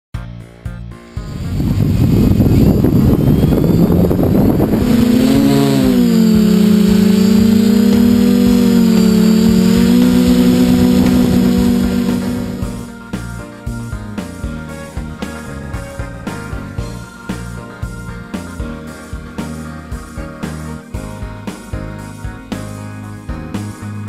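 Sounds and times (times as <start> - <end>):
drone motors humming: 1.0 - 23.7
prop wash rushing rumble: 1.1 - 13.3.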